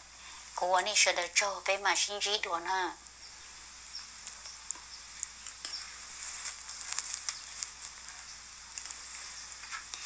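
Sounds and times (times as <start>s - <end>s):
recording hiss: 0.0s - 10.0s
crackling clicks: 3.0s - 10.0s.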